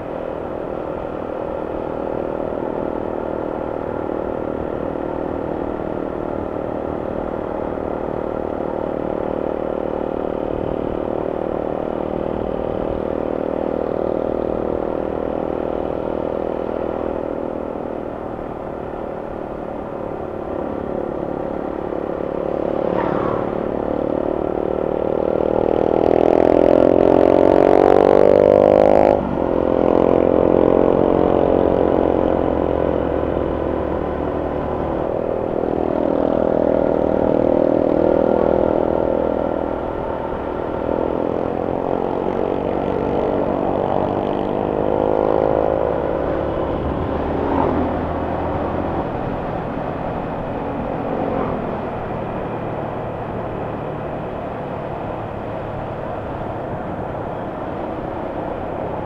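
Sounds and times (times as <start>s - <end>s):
motorcycle engine revving: 20.2s - 59.0s.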